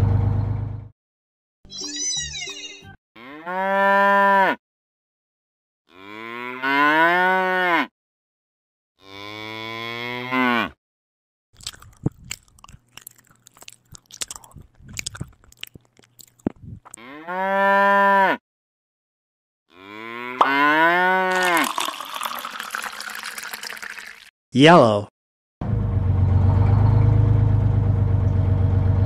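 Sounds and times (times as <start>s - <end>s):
cow mooing: 3.2s - 4.6s, 5.9s - 7.9s, 9.0s - 10.8s, 17.0s - 18.4s, 19.7s - 21.3s.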